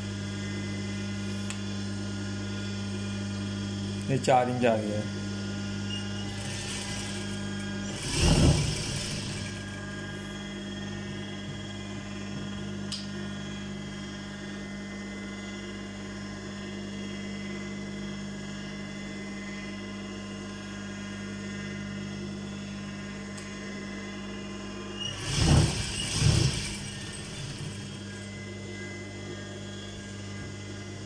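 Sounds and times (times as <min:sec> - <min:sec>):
sewing machine motor humming: 0:05.8 - 0:10.2, 0:25.0 - 0:29.1
sewing machine stitching: 0:05.9 - 0:09.8, 0:25.0 - 0:28.3.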